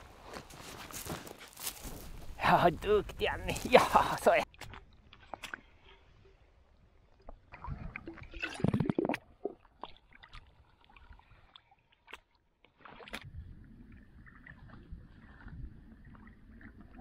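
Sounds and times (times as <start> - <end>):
water gurgling into plastic bottle: 7.4 - 10.3.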